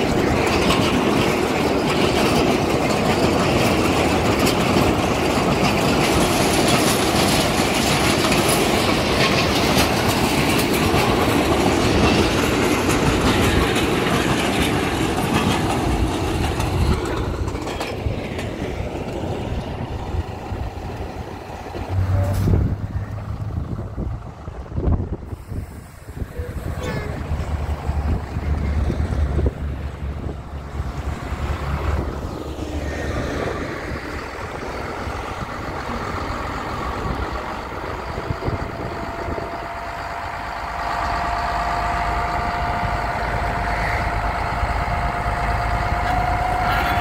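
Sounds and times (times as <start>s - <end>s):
train wagons clattering over rails: 0.0s - 47.0s
low buffet: 19.5s - 24.7s.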